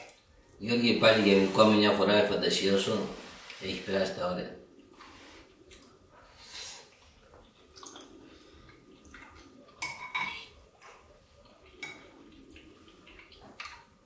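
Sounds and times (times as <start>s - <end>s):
spoons scraping earthenware pots: 0.8s - 2.2s.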